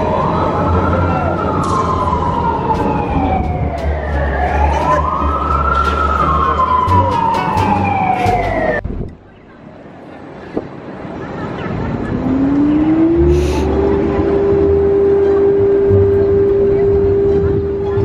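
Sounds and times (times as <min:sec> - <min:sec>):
emergency vehicle siren wailing: 0:00.0 - 0:08.8, 0:11.9 - 0:18.0
city traffic rumble: 0:00.0 - 0:18.0.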